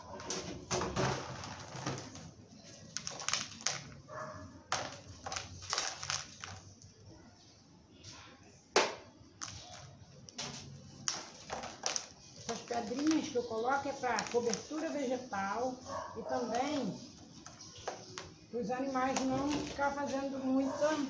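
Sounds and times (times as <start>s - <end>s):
pebbles clicking and rattling: 2.8s - 4.0s, 4.7s - 6.9s, 9.4s - 15.0s.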